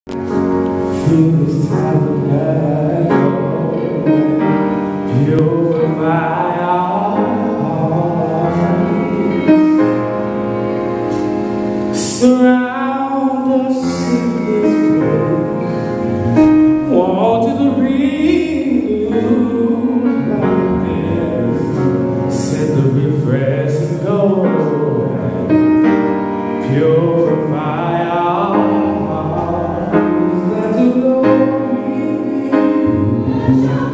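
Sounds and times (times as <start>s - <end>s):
keyboard accompaniment: 0.0s - 33.9s
man singing into microphone: 0.1s - 10.4s, 11.9s - 33.9s
choir singing: 5.1s - 10.2s, 13.6s - 23.8s, 26.7s - 33.9s.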